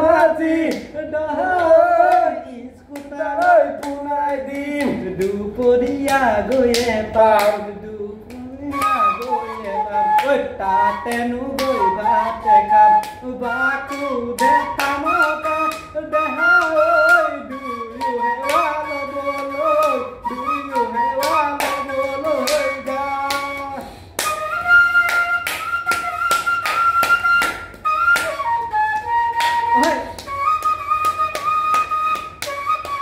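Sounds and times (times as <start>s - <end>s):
sharp clap-like taps: 2.9s - 7.6s, 25.0s - 28.4s, 29.0s - 33.0s
bamboo flute melody: 8.6s - 33.0s.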